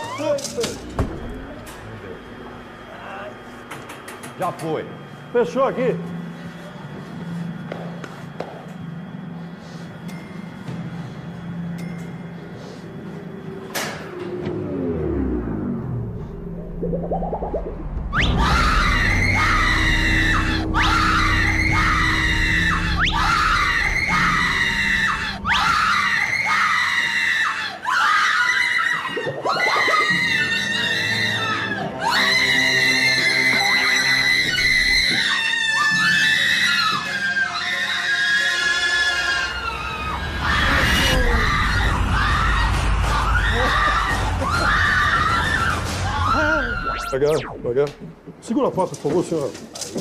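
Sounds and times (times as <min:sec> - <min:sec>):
low rumble: 0:14.5 - 0:25.6, 0:39.7 - 0:48.4
woman screaming: 0:18.4 - 0:47.1.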